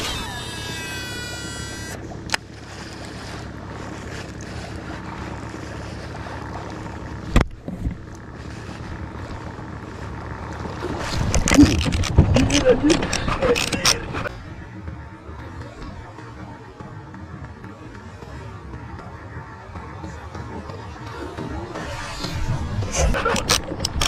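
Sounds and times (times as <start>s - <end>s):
fishing reel spool whining: 0.0s - 7.2s.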